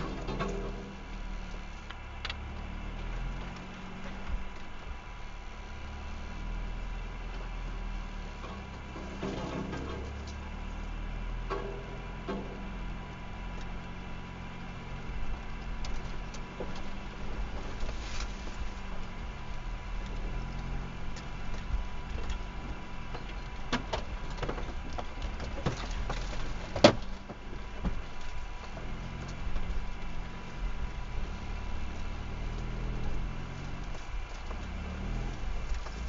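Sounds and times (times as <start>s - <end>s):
off-road vehicle engine hum: 0.0s - 36.0s
vehicle knocks and clatters: 0.0s - 36.0s.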